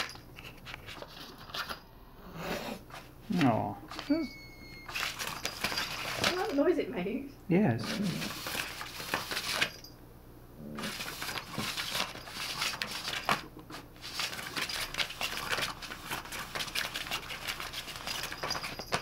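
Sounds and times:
cat batting a noisy toy: 4.9s - 6.6s, 10.7s - 19.0s.

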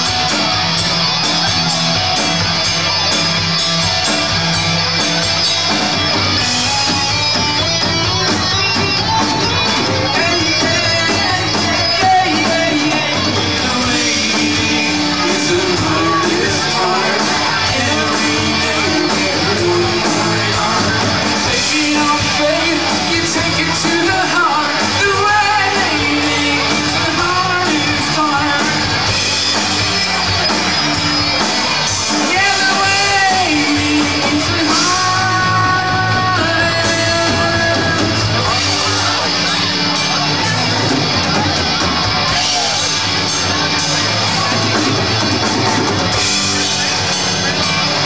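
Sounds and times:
live rock band: 0.0s - 48.0s
person singing: 8.7s - 29.0s, 32.2s - 39.8s.

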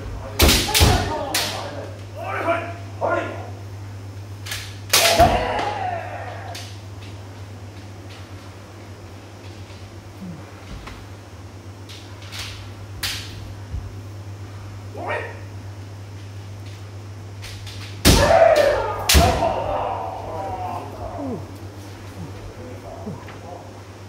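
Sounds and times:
loud shout: 5.0s - 6.8s, 18.1s - 21.5s.

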